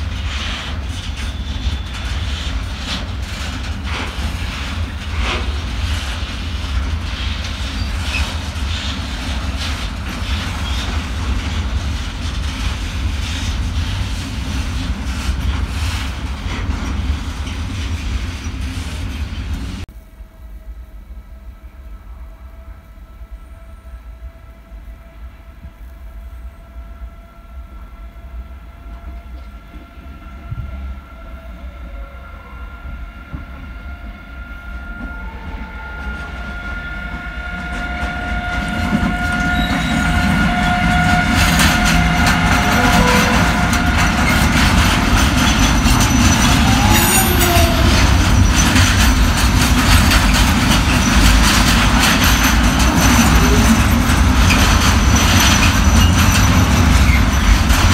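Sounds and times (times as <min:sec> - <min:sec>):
electric locomotive whining: 0:00.0 - 0:57.9
wheels clicking over rail joints: 0:37.6 - 0:57.9
freight wagons rolling by: 0:38.4 - 0:57.9.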